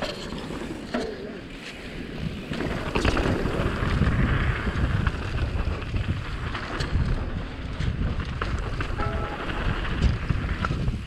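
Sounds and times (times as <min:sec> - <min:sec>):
bike clicks and rattles: 0:00.0 - 0:11.0
tyres rumbling on dirt: 0:01.8 - 0:11.0
wind rushing over microphone: 0:02.2 - 0:11.0.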